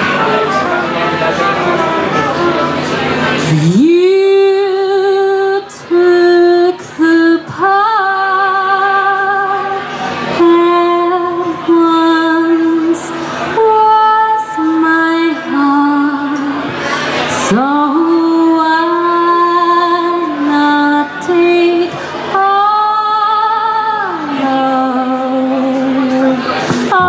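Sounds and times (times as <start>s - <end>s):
woman singing jazz: 3.3s - 27.0s.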